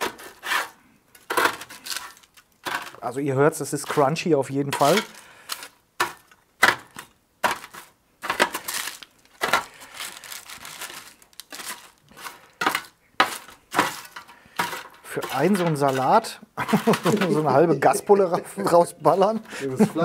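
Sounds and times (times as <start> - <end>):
metal spatula scraping crispy potatoes: 0.0 - 8.8, 11.5 - 17.6.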